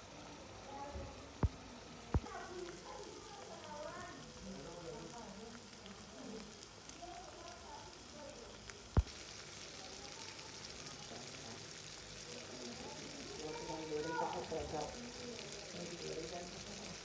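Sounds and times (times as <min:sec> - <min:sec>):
meat frying in oil sizzling: 0:00.0 - 0:17.0.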